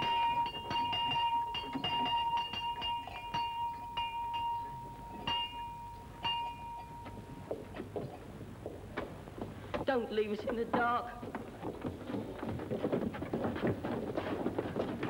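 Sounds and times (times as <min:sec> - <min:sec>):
large bell clanging: 0:00.0 - 0:07.7.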